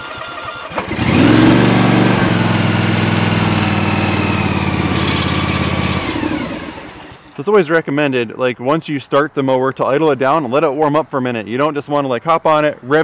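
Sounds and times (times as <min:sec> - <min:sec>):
mower engine starting and running: 0:00.0 - 0:07.4.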